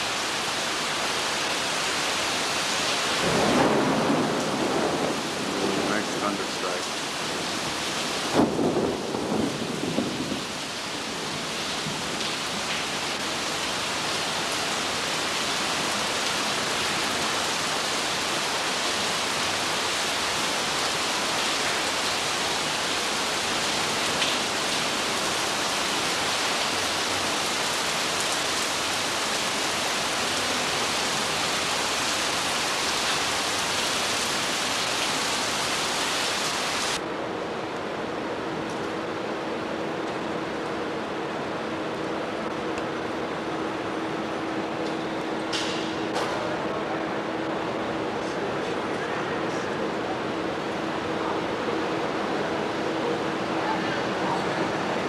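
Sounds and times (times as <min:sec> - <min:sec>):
heavy rain hissing: 0:00.0 - 0:37.0
rumbling thunder: 0:03.2 - 0:06.4, 0:07.3 - 0:12.1.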